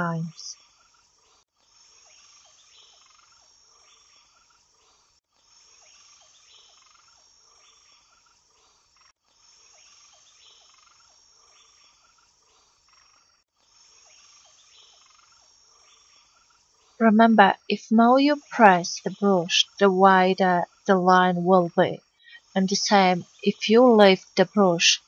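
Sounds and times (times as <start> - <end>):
thin high hiss: 0.1 - 17.0
faint background track: 17.0 - 25.0.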